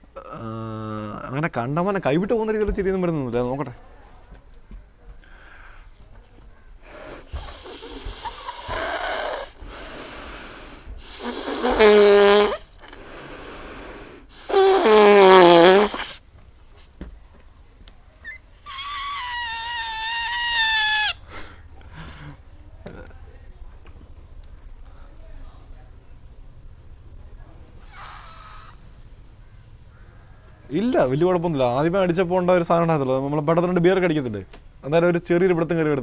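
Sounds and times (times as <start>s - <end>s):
breathing into balloon: 6.8s - 16.2s, 27.8s - 29.0s
balloon neck squealing: 11.0s - 12.9s, 14.3s - 16.2s, 18.2s - 21.3s, 27.8s - 29.0s.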